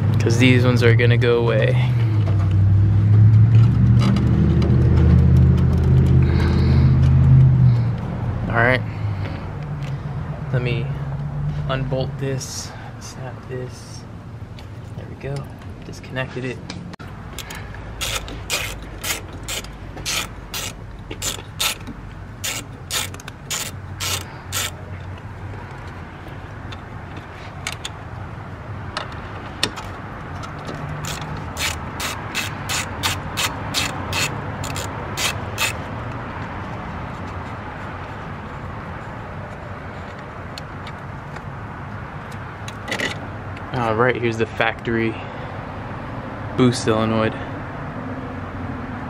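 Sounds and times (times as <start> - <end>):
ratchet wrench clicking: 17.4 - 24.8, 31.0 - 35.8.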